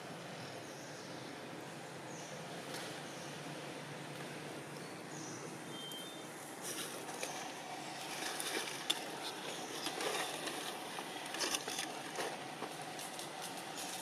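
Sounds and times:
outdoor background noise: 0:00.0 - 0:14.0
soft clicks and rustles: 0:06.6 - 0:14.0.

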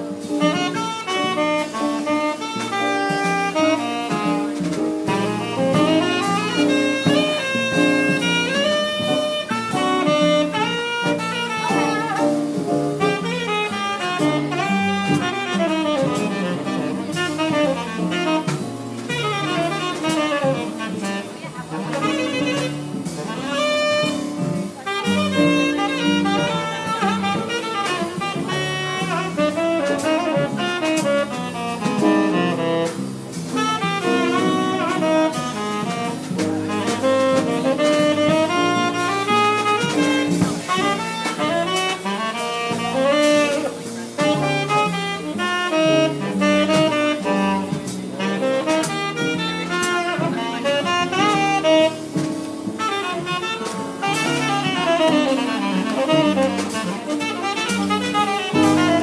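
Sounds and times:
bass line: 0:00.0 - 0:47.7
drum kit: 0:00.0 - 0:59.0.

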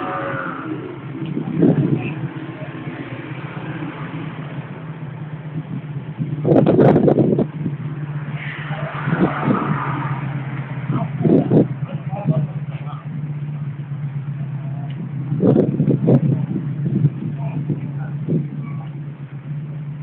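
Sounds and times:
motorcycle engine idling: 0:00.0 - 0:08.2, 0:10.3 - 0:20.0
engine revving sharply: 0:06.4 - 0:13.1.

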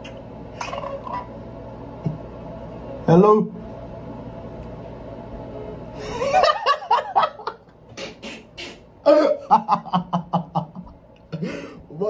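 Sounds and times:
man laughing hard: 0:06.0 - 0:07.6, 0:09.0 - 0:11.8.

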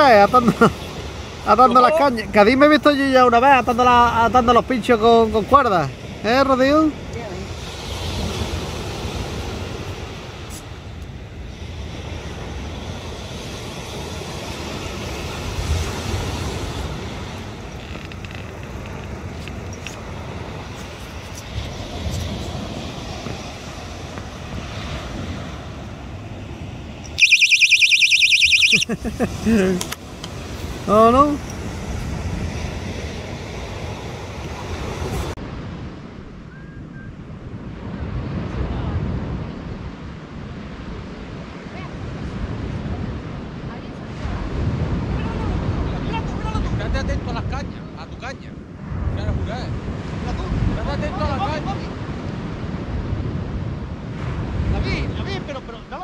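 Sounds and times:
wind rumbling on microphone: 0:00.0 - 0:27.2, 0:29.0 - 0:56.0
waves washing on pebble beach: 0:07.0 - 0:10.8, 0:11.4 - 0:17.8.

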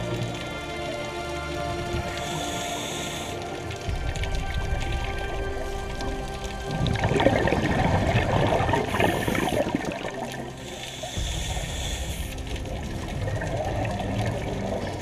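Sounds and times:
exhaled bubbles gurgling: 0:00.0 - 0:15.0
regulator inhale hiss: 0:02.1 - 0:03.9, 0:08.8 - 0:10.0, 0:10.6 - 0:12.7.

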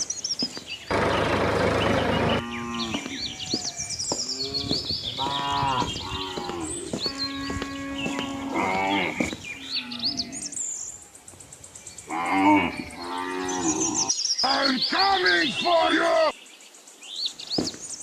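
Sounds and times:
birds chirping: 0:00.0 - 0:18.0
cattle mooing: 0:02.0 - 0:03.5, 0:04.4 - 0:10.4.

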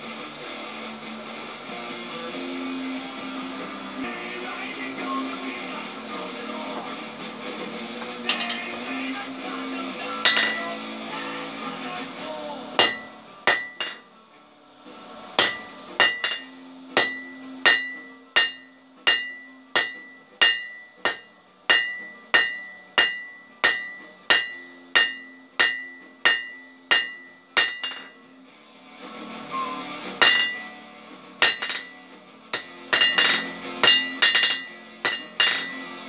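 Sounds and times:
hammer striking metal on anvil: 0:08.0 - 0:09.0, 0:10.2 - 0:10.8, 0:12.8 - 0:14.1, 0:15.4 - 0:28.2, 0:30.1 - 0:30.8, 0:31.4 - 0:36.0.

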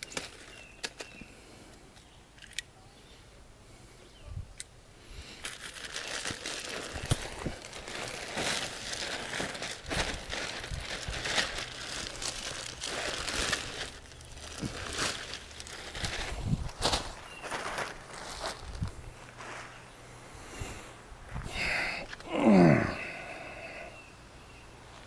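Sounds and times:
plastic bag crinkling: 0:05.4 - 0:18.9.

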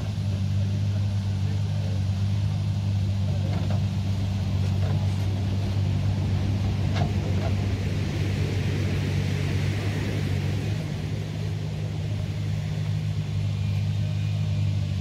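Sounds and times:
excavator diesel engine humming: 0:00.0 - 0:15.0
surf breaking on beach: 0:05.1 - 0:13.5.

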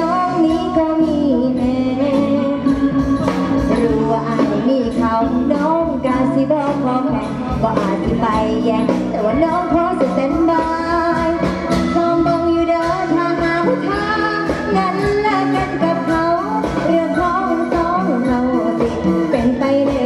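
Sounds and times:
folk band with drums: 0:00.0 - 0:20.0
girl singing into a microphone: 0:00.0 - 0:20.0.

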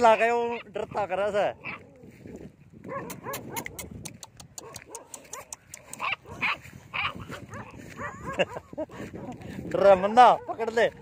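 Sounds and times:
sharp clicks: 0:03.1 - 0:06.1.

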